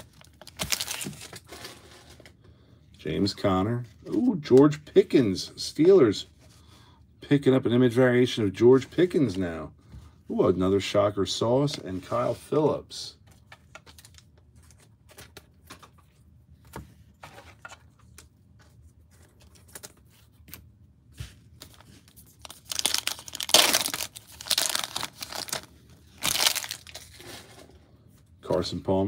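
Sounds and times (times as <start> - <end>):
foil wrapper ripping and crinkling: 0.0 - 1.5, 21.7 - 27.3.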